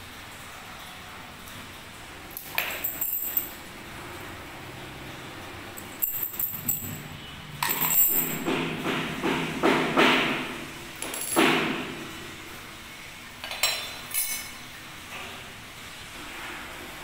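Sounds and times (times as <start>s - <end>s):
keys clinking and jingling: 2.5s - 3.6s, 5.8s - 7.0s, 7.6s - 8.4s.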